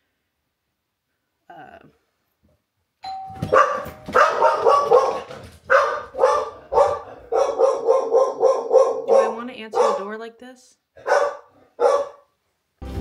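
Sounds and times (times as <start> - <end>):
doorbell chime: 3.0 - 4.2
dog barking: 3.5 - 10.1, 11.0 - 12.3.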